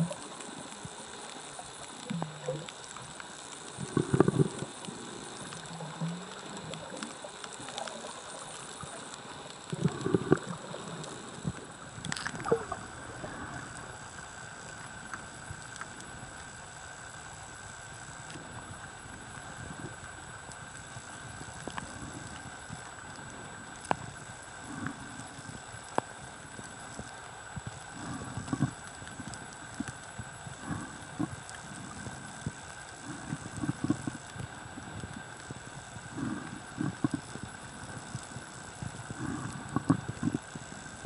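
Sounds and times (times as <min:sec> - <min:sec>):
faint steady whine: 0:00.0 - 0:41.0
muffled underwater water thumps: 0:11.4 - 0:13.2.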